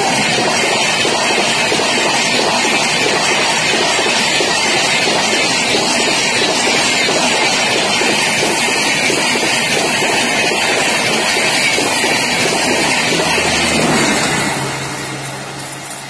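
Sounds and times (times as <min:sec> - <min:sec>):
train wheels rushing on rails: 0:00.0 - 0:16.0
locomotive engine hum: 0:11.8 - 0:16.0.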